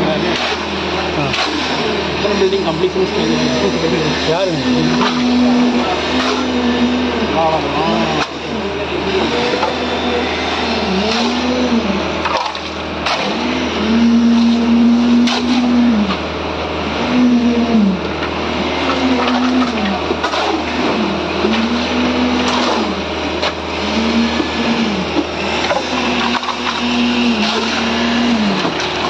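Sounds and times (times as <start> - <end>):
engine-driven machine running: 0.0 - 29.0
shovel scraping gravel and concrete: 19.2 - 24.5.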